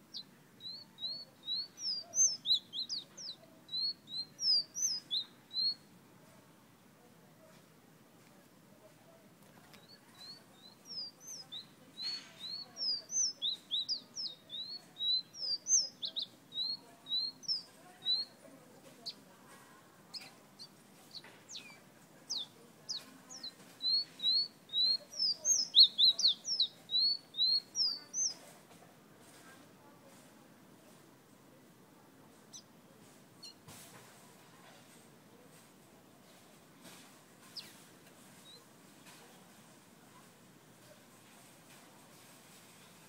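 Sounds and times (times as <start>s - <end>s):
songbird whistling: 0.1s - 5.8s, 9.8s - 18.4s, 21.1s - 28.4s.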